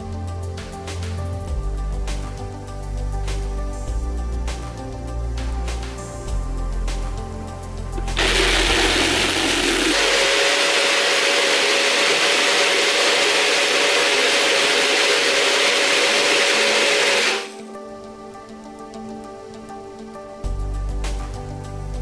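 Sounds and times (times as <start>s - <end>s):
blender humming: 8.0s - 17.6s.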